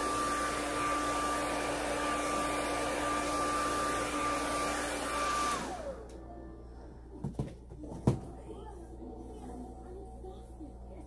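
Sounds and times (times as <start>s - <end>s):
hair dryer blowing: 0.0s - 6.2s.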